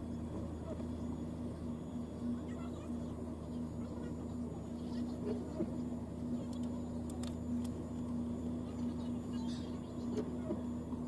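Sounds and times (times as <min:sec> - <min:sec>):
vehicle engine idling: 0:00.0 - 0:11.0
faint clicks: 0:06.4 - 0:08.2.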